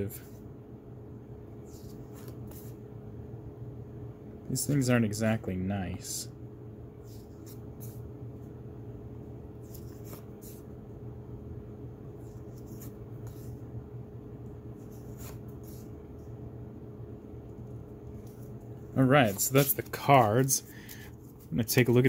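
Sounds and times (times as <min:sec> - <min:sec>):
low room hum: 0:00.0 - 0:22.0
cards sliding papery swishes: 0:01.6 - 0:02.8, 0:07.0 - 0:08.1, 0:09.6 - 0:10.7, 0:12.3 - 0:13.6, 0:14.8 - 0:16.0, 0:19.1 - 0:22.0.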